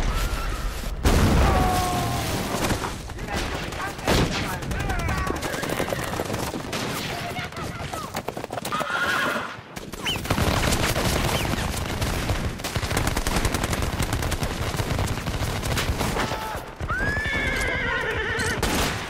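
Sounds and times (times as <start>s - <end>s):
rapid rifle gunfire: 2.6s - 8.4s, 9.8s - 16.9s
horse whinny: 8.7s - 9.6s, 16.9s - 18.6s.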